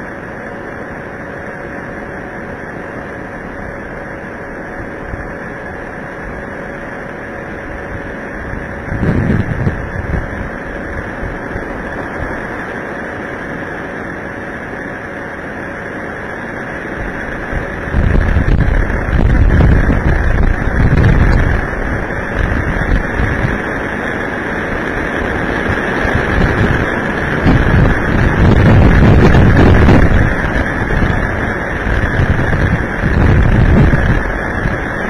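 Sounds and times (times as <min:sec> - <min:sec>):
storm wind on microphone: 0:03.5 - 0:35.0
wind gusts buffeting microphone: 0:04.8 - 0:13.7, 0:15.9 - 0:35.0.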